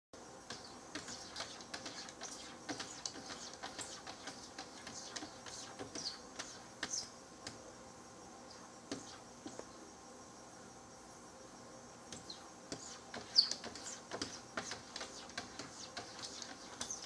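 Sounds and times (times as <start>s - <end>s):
cat paws scraping on glass: 0.6s - 7.1s, 12.2s - 17.0s.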